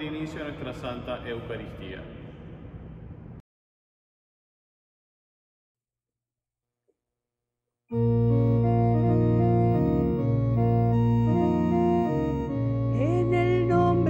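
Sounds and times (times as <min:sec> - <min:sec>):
organ playing sustained chords: 0:07.9 - 0:14.0.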